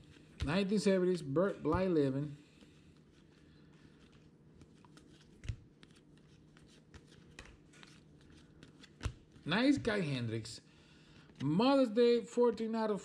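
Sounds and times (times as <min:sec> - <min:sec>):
low steady hum: 0:00.0 - 0:13.0
trading cards flipping: 0:02.6 - 0:10.0.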